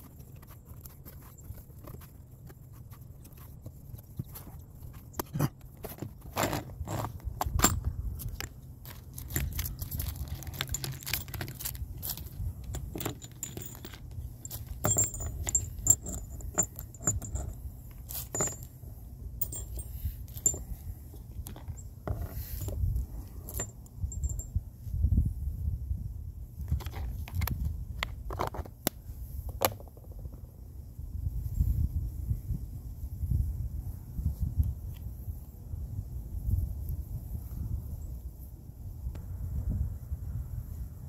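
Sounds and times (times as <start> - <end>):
low steady hum: 0.0 - 41.0
small metal tools clinking: 4.2 - 18.8, 19.4 - 24.6.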